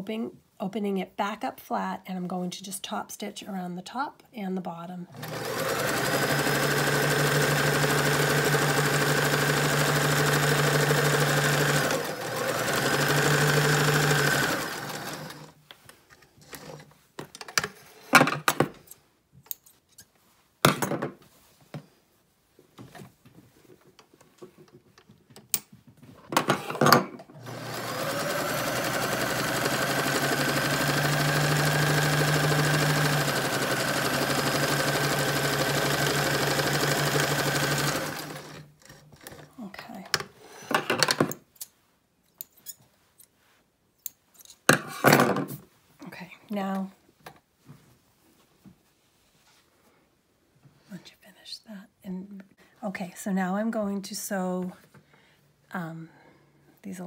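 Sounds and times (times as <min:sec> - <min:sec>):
sewing machine running: 0:05.1 - 0:15.5, 0:27.4 - 0:38.7.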